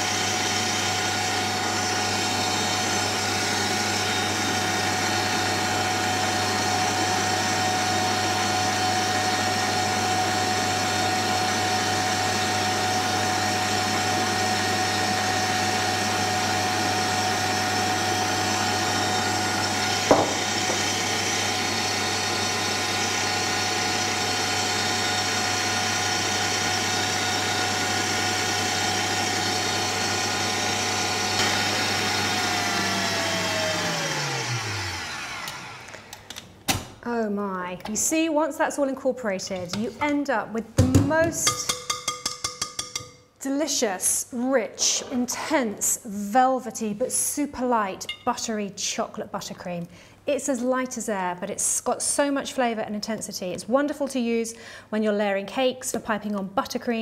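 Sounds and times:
stand mixer motor hum: 0.0s - 36.3s.

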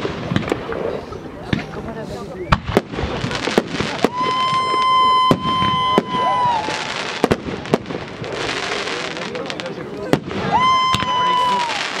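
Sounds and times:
firework crackling hiss: 2.0s - 12.0s
whistling firework: 2.3s - 9.4s, 10.1s - 12.0s.

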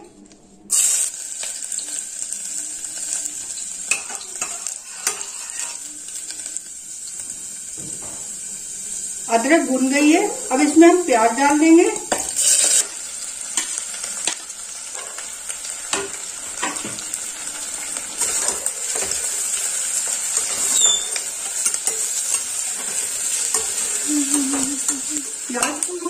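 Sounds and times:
onions sizzling in hot oil: 0.7s - 26.0s
metal spoon scraping a pot: 3.9s - 5.9s, 20.4s - 23.8s.

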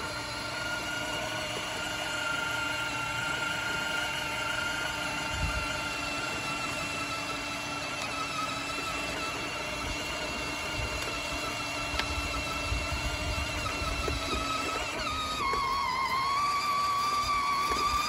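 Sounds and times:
electric motor whining: 0.0s - 18.0s.

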